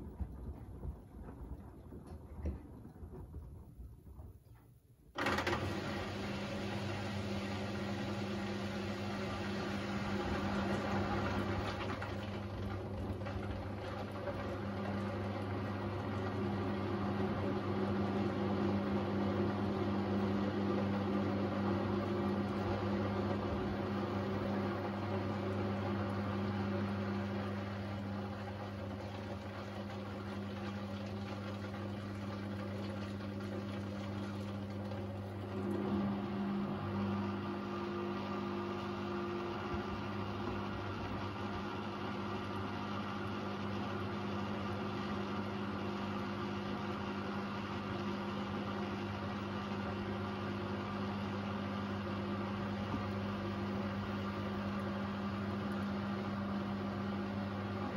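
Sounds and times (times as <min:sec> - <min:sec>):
washing machine motor humming: 0:00.0 - 0:57.9
water sloshing in drum: 0:22.1 - 0:41.7.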